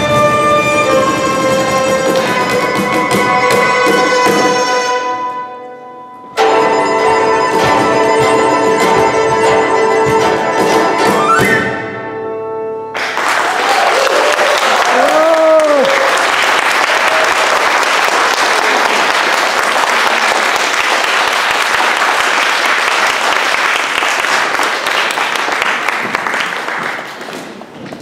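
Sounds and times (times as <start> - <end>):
audience applauding: 12.9 - 28.0.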